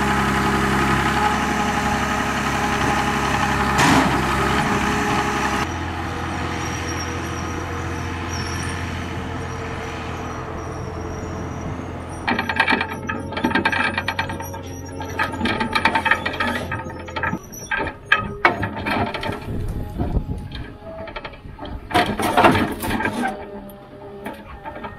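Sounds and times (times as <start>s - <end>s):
forwarder diesel engine running: 0.0s - 24.9s
metallic clanking and rattling: 12.1s - 24.9s.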